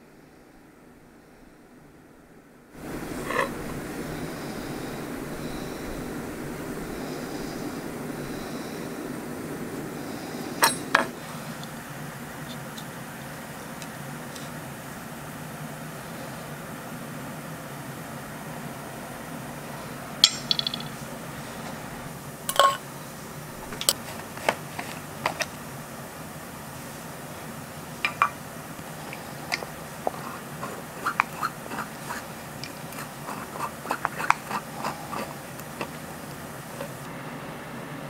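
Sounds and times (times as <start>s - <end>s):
steady low hum: 0.0s - 38.0s
tools clinking on steel table: 10.6s - 11.1s, 20.2s - 21.0s, 22.5s - 22.8s.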